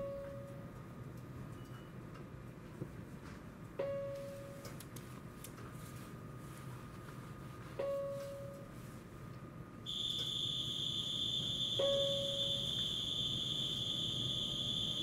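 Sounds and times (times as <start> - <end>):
low rumble of electric train: 0.0 - 15.0
electronic chime: 9.9 - 15.0
high-pitched buzzer tone: 9.9 - 15.0.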